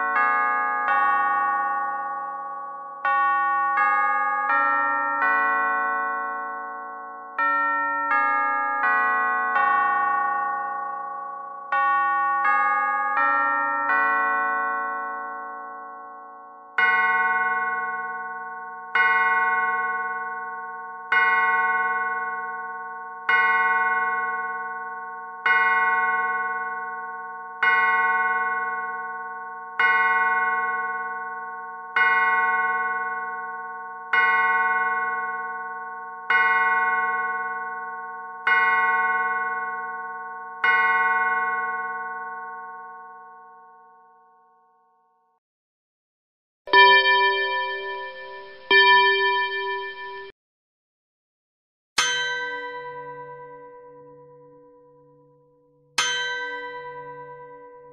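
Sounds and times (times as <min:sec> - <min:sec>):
clock bell striking: 0:00.0 - 0:06.8, 0:07.4 - 0:15.2, 0:46.7 - 0:50.3
clock chime tune: 0:00.0 - 0:37.6, 0:46.7 - 0:50.3.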